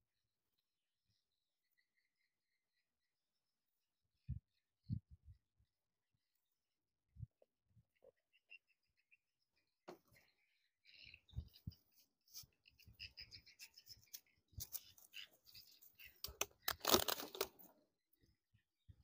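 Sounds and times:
dry leaves and twigs rustling: 14.6 - 17.7.

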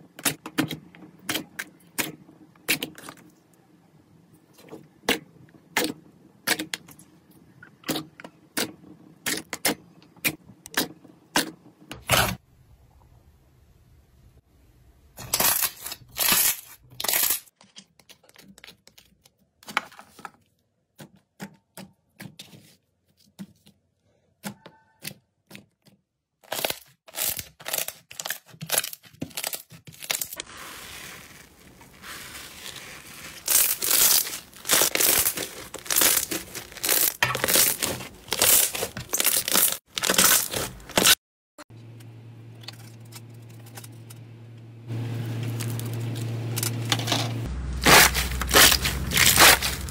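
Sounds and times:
hands squeezing sticky slime: 27.2 - 40.2.

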